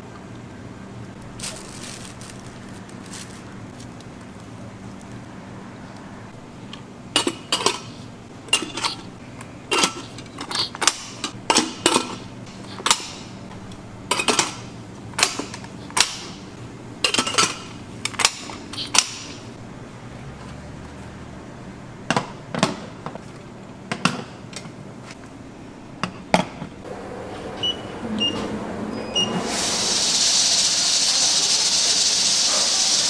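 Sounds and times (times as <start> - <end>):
steady low hum: 0.0 - 29.9
kitchen utensils and dishes clinking: 7.2 - 9.1, 9.7 - 12.2, 17.0 - 19.1.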